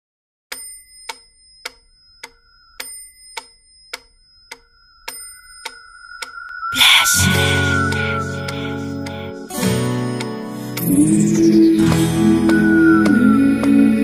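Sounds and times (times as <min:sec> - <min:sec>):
clock ticking: 0:00.5 - 0:09.6
faint high ringing: 0:00.6 - 0:09.8
steady held tone: 0:01.4 - 0:11.8.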